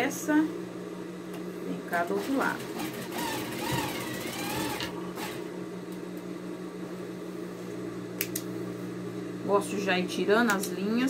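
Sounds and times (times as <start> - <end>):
steady low hum: 0.0 - 11.0
sewing machine stitching: 2.1 - 5.4.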